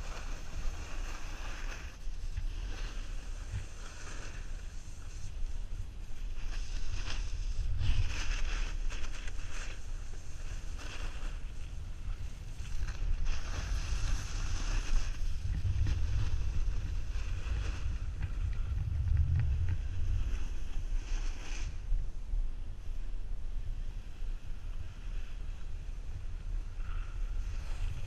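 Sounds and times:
snowboard scraping on snow: 0:00.0 - 0:05.4, 0:06.2 - 0:22.0, 0:27.4 - 0:28.0
wind buffeting microphone: 0:11.3 - 0:28.0.

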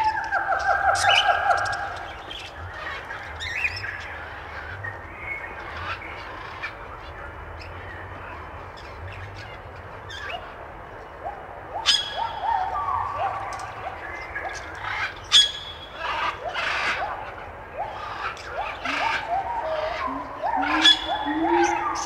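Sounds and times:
steady background noise: 0:00.0 - 0:22.0
bird-like chirps: 0:11.8 - 0:22.0.

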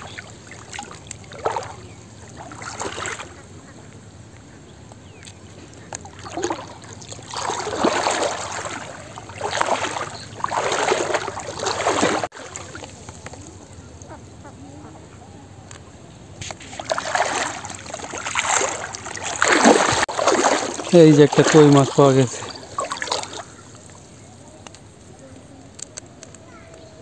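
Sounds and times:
muddy water sloshing and splashing: 0:00.0 - 0:14.2, 0:16.4 - 0:25.2.

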